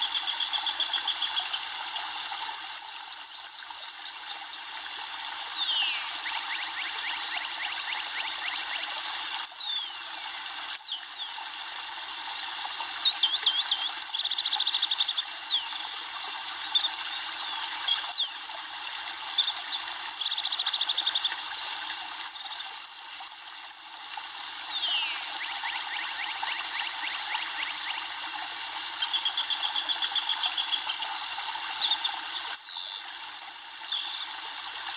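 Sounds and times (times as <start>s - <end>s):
small birds chirping: 5.5s - 7.6s, 9.4s - 10.1s, 24.7s - 26.6s, 31.8s - 34.3s.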